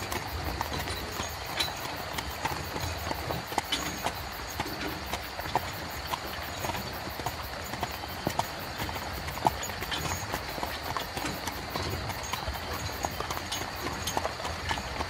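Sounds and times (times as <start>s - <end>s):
hooves clip-clopping: 0.0s - 15.0s.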